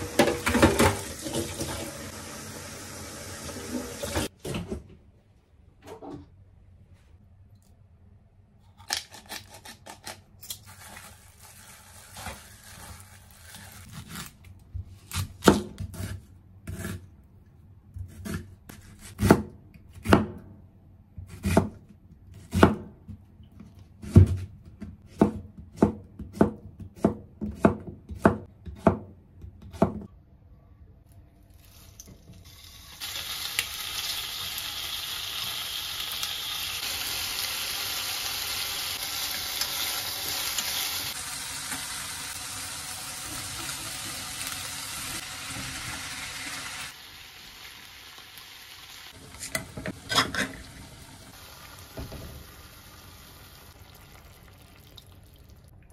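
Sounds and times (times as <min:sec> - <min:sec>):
knife chopping on wooden board: 0:24.0 - 0:30.1
food sizzling in frying pan: 0:32.5 - 0:54.7.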